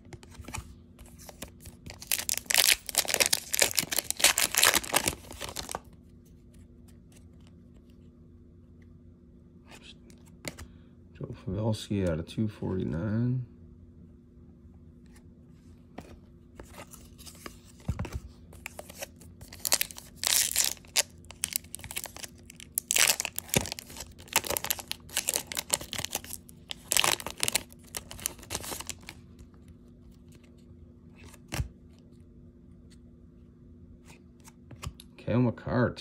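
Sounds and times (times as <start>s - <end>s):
foil wrapper tearing and crinkling: 1.6s - 5.8s, 19.4s - 29.2s.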